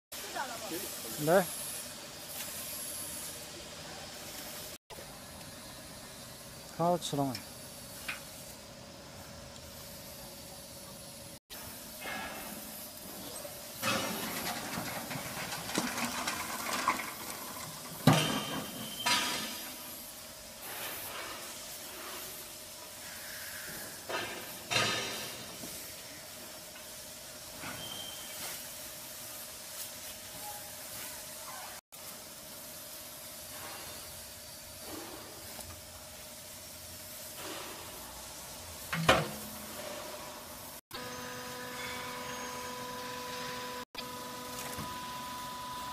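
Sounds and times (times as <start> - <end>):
steady hiss: 0.2 - 15.6, 16.6 - 40.8
metal door shutting with a bang: 17.9 - 19.7, 38.8 - 40.2
metal door clanking: 38.9 - 39.9.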